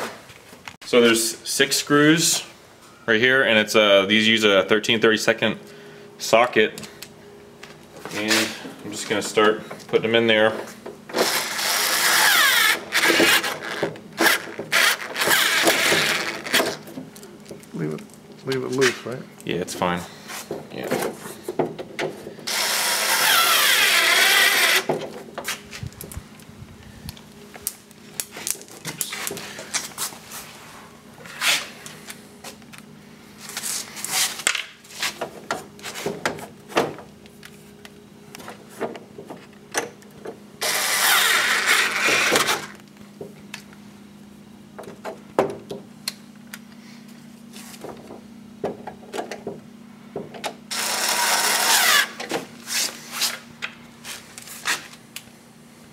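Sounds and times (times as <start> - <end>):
cordless screwdriver running: 11.2 - 16.6, 22.5 - 24.9, 40.6 - 42.7, 50.7 - 52.2.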